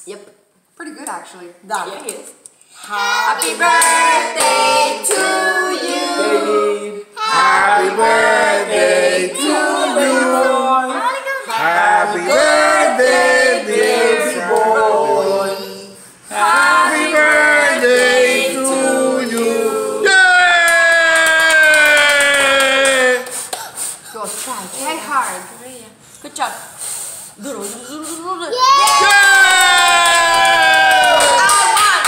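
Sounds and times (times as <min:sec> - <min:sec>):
group of voices singing: 0:02.8 - 0:20.1.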